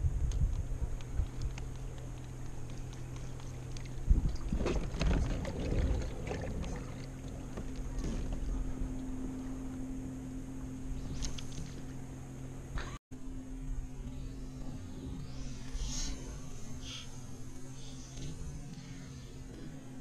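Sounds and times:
low hum: 0.0 - 20.0
clatter and rustle: 0.3 - 9.0.

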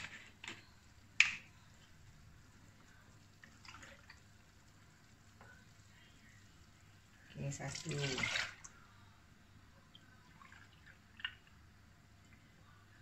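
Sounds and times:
milk pouring into a cup: 2.5 - 9.0.

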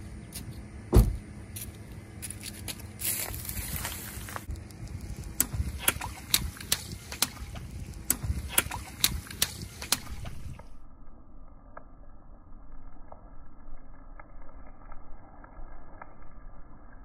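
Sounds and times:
car rumble: 0.0 - 10.7.

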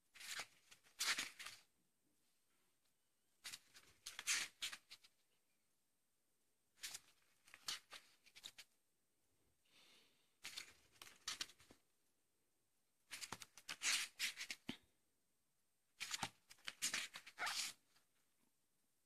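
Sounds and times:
book pages riffling: 0.1 - 1.6, 3.4 - 5.1, 6.8 - 8.7, 10.4 - 11.8, 13.1 - 14.7, 16.0 - 17.8.

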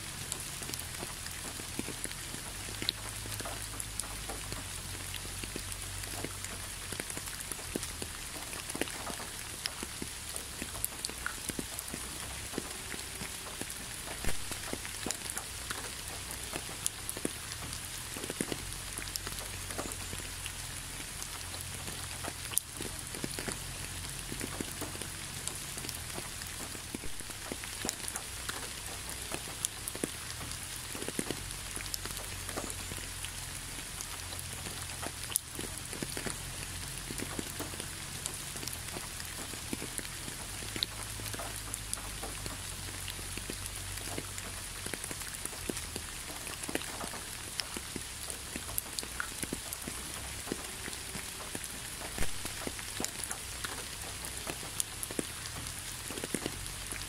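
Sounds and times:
raindrops clicking: 0.0 - 57.0
steady rain hiss: 0.0 - 57.0.

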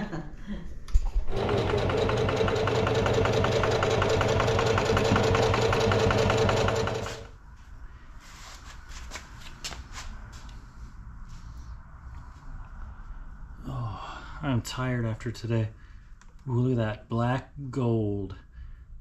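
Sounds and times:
electric sewing machine stitching: 1.1 - 7.3.

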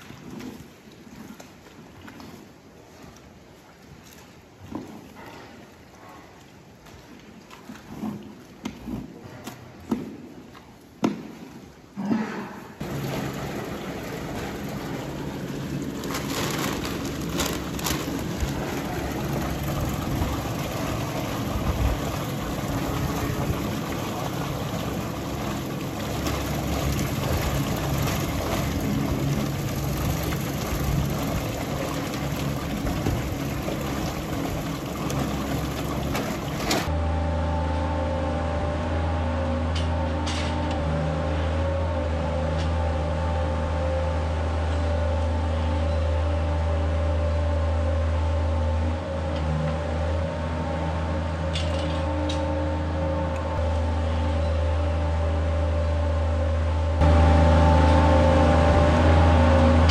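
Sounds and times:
mixing tank agitator churning: 12.0 - 37.0
machinery hum and drone: 12.0 - 59.9.

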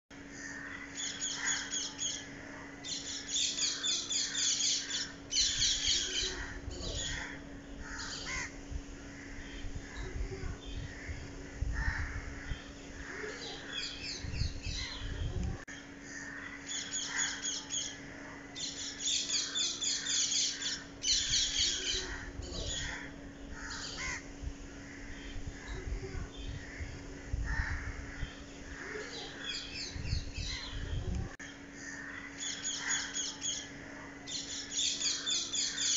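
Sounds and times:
faint steady hum: 0.1 - 35.9
crows cawing: 0.3 - 1.9, 3.4 - 9.6, 10.9 - 13.9, 16.0 - 17.8, 19.2 - 25.4, 26.6 - 29.5, 31.8 - 33.3, 34.9 - 35.9.

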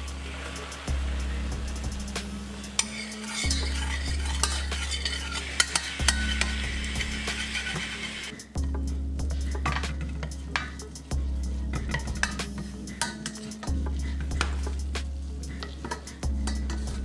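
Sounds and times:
wine bubbling and sizzling: 0.0 - 17.0
spoon clinking against pan: 2.8 - 7.0, 11.8 - 13.8.

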